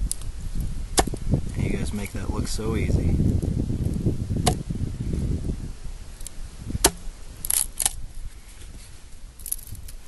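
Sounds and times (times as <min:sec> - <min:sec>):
axe knocking wood: 0:06.8 - 0:07.0.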